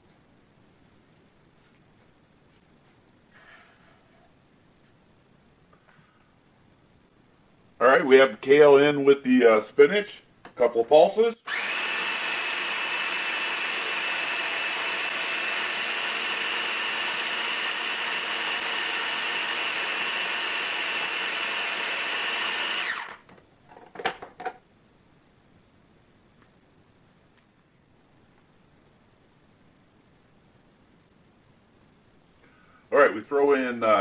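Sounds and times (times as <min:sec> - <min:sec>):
food processor running: 0:11.5 - 0:23.2.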